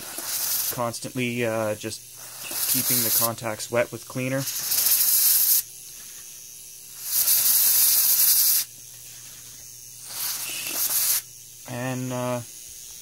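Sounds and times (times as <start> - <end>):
aerosol spray hissing: 0.0 - 0.9, 2.2 - 3.4, 4.3 - 6.3, 6.9 - 11.3.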